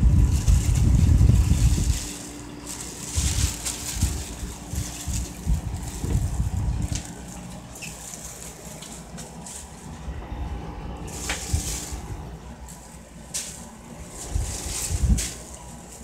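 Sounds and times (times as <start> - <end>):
handling bumps: 0.0 - 10.1
air conditioner humming: 0.0 - 16.0
rustling: 0.0 - 16.0.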